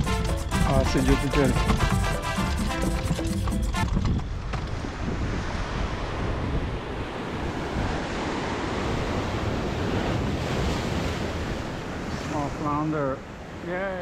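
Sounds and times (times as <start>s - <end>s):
music: 0.0s - 4.0s
wind on microphone: 0.0s - 12.3s
waves breaking on rocks: 7.1s - 14.0s.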